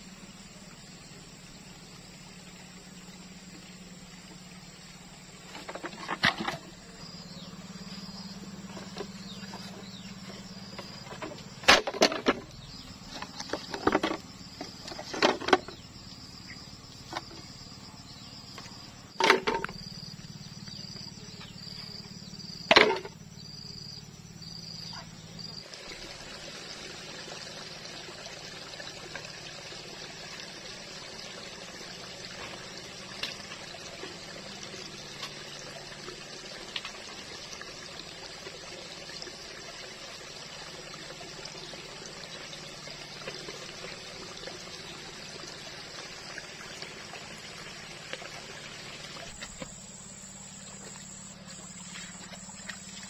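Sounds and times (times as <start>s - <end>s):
insect chirping: 0.0s - 53.0s
bamboo poles and stones knocking: 10.8s - 12.5s, 13.1s - 15.8s, 19.2s - 19.8s, 22.7s - 23.2s.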